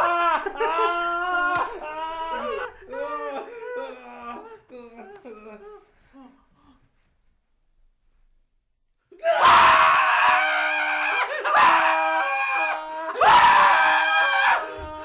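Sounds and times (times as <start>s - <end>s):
men screaming: 0.0s - 4.8s, 9.2s - 15.0s.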